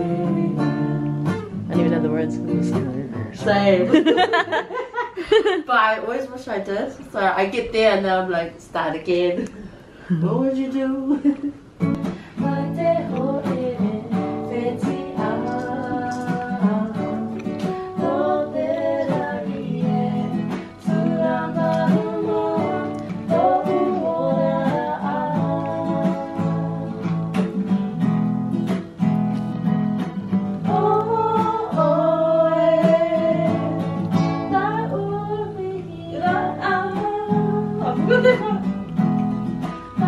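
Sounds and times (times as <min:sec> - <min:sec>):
woman singing: 0:00.0 - 0:04.0, 0:10.1 - 0:11.5, 0:12.3 - 0:27.5, 0:30.6 - 0:38.8
acoustic guitar strumming chords: 0:00.0 - 0:04.5, 0:11.8 - 0:40.0.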